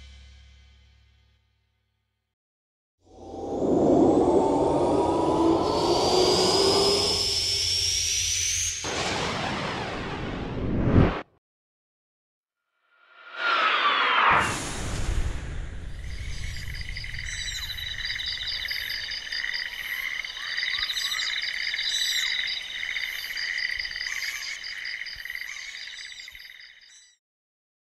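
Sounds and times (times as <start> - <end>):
low rumble: 3.1 - 7.5
frogs and insects trilling: 4.2 - 8.6, 16.0 - 27.2
short chirping calls: 16.1 - 27.2.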